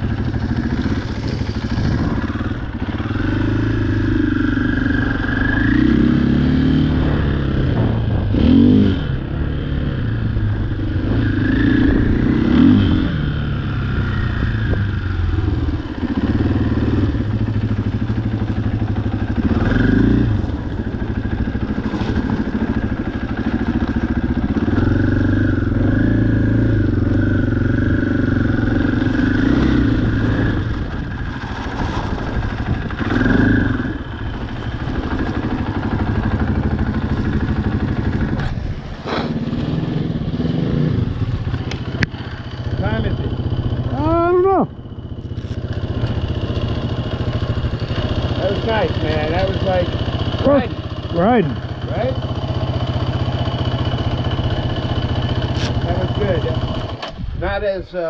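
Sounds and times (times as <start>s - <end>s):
off-road vehicle engine revving: 0.0s - 57.3s
vehicle clattering over rough ground: 16.9s - 25.2s, 28.2s - 40.3s, 41.1s - 57.6s.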